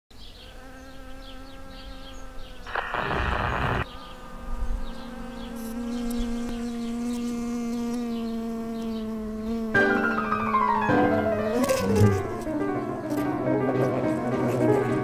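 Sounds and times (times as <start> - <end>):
bee buzzing in flight: 0.3 - 15.0
burst of rushing noise: 2.7 - 3.8.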